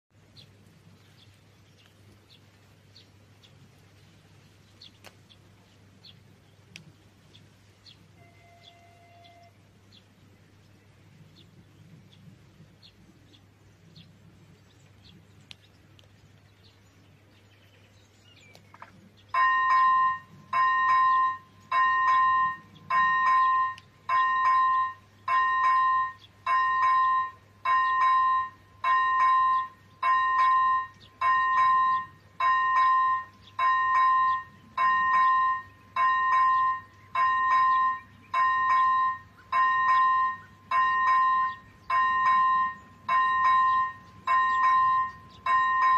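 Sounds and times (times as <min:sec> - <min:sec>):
faint bird chirps: 0:07.8 - 0:10.1
level crossing warning bell: 0:08.2 - 0:09.6, 0:19.3 - 0:45.9.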